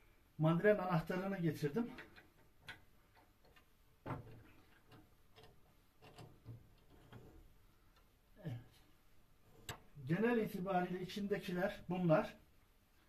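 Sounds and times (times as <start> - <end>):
faint metal clicks and taps: 1.9 - 8.2, 9.5 - 10.0.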